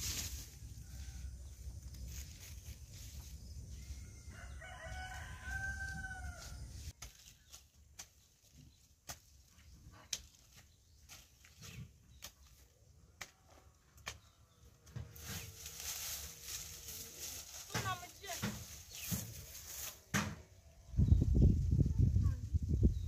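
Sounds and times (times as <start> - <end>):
rooster crowing: 3.7 - 6.8
hand hoe striking soil: 6.9 - 12.6, 17.6 - 20.4.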